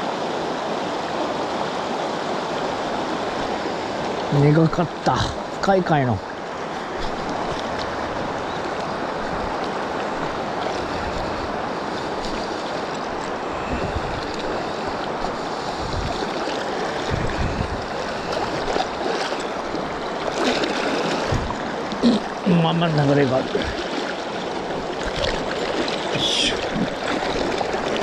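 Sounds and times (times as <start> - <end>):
river current rushing: 0.0 - 28.0
wind buffeting microphone: 6.7 - 22.4.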